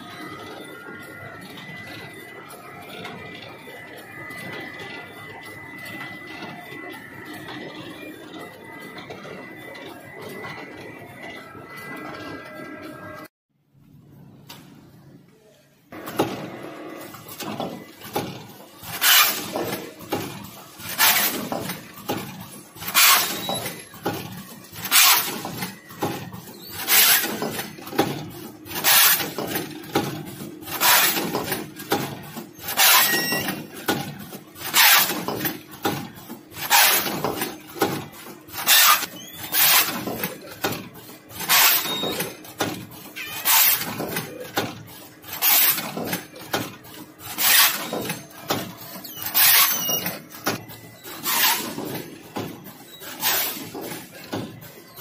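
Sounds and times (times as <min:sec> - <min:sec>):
machine clicks and clatter: 0:15.9 - 0:55.0.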